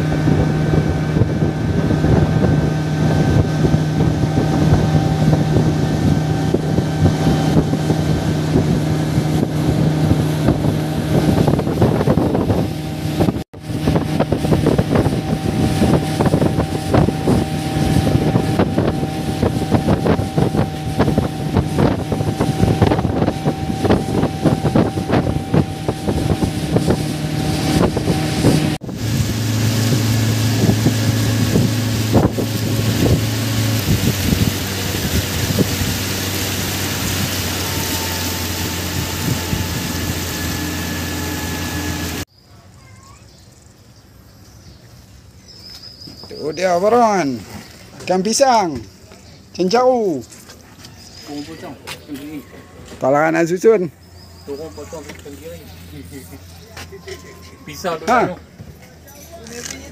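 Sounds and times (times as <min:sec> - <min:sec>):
wind buffeting microphone: 0:00.0 - 0:42.2
boat engine running: 0:00.0 - 0:42.3, 0:43.6 - 0:59.9
water rushing along hull: 0:00.0 - 0:42.3, 0:46.1 - 0:59.9.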